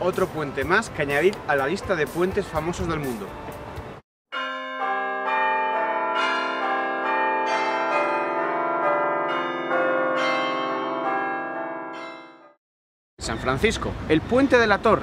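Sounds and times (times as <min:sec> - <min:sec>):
bell-like chime melody: 0:04.3 - 0:12.6.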